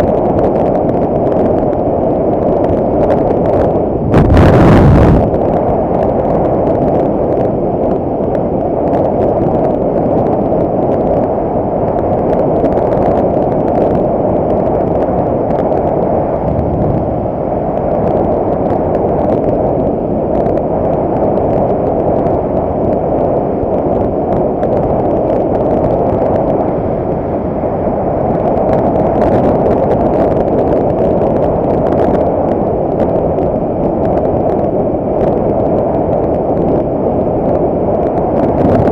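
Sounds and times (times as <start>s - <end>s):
wind rush over microphone: 0.0s - 38.9s
motorcycle engine and road noise: 3.1s - 6.2s, 15.2s - 19.7s.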